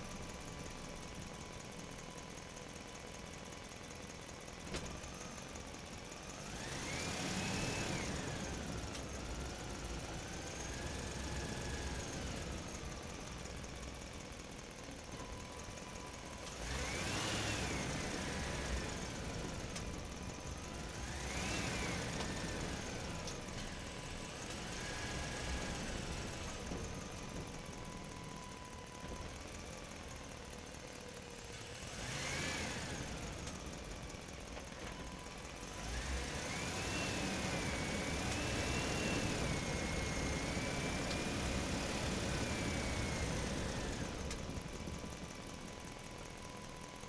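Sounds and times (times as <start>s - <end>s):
engine revving: 6.4s - 12.8s, 16.5s - 19.9s, 20.6s - 26.8s, 31.6s - 33.6s, 35.6s - 44.4s.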